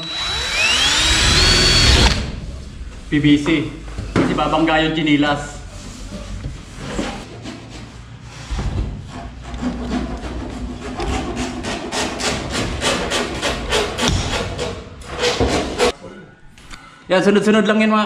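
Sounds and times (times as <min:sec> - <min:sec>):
power drill boring through plastic: 0:00.0 - 0:02.3.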